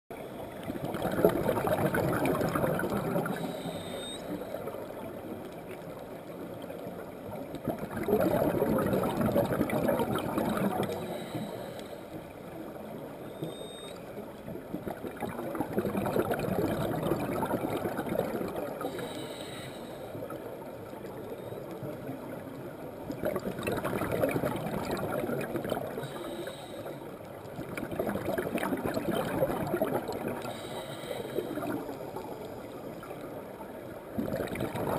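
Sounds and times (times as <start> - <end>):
exhaled bubbles gurgling: 0.1 - 34.9
diver breathing in through regulator: 2.5 - 4.6, 10.6 - 12.3, 18.8 - 20.2, 26.0 - 27.1, 30.4 - 32.7.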